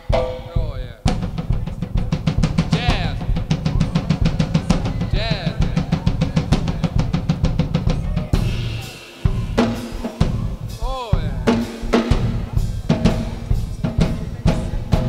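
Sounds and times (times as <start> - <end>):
band playing sustained notes: 0.0 - 15.0
fast drum roll: 0.0 - 15.0
ringing cymbal: 8.3 - 13.8.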